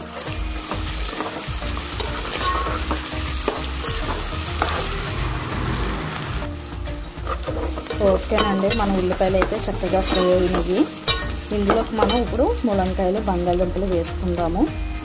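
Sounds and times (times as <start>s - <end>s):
food sizzling in hot oil: 0.0s - 15.0s
spatula scraping metal pan: 1.1s - 6.2s, 7.2s - 12.2s.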